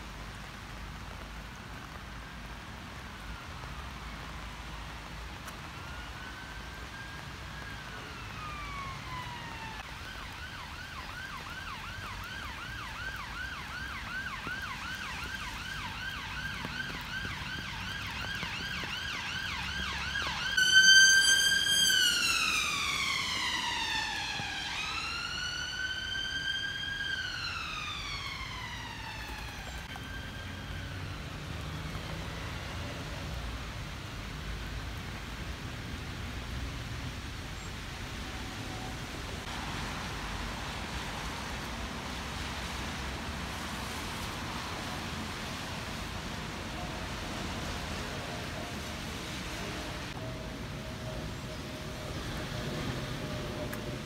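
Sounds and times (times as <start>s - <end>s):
emergency vehicle siren: 3.1s - 34.7s, 38.2s - 54.0s.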